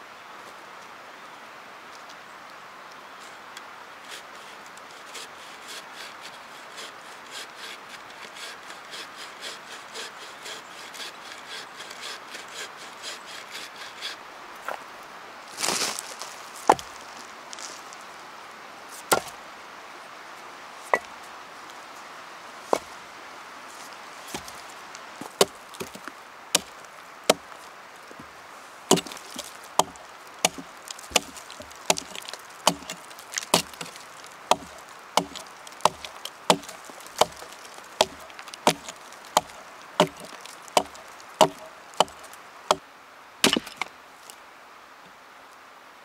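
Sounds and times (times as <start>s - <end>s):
blade chopping wood: 16.7s - 16.9s, 19.1s - 19.4s, 24.3s - 24.6s, 25.2s - 27.5s, 28.9s - 42.8s, 43.4s - 43.9s.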